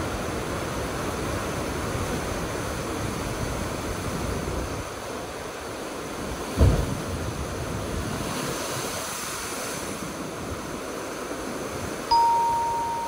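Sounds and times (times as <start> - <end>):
ocean surf over rocks: 0.0 - 13.0
bell-like chime: 12.1 - 13.0.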